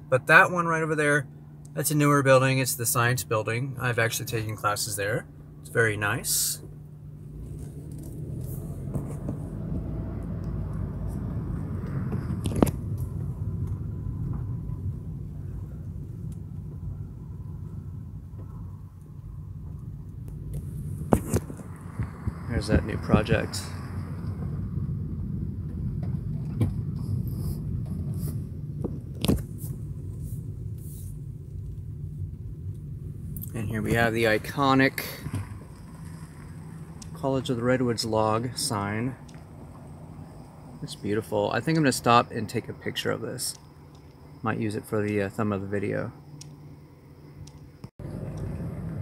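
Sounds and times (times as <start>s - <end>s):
car engine and road rumble: 0.0s - 49.0s.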